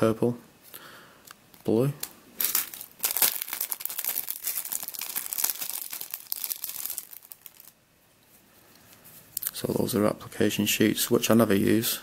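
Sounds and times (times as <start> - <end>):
cellophane bag crinkling: 2.4 - 7.8.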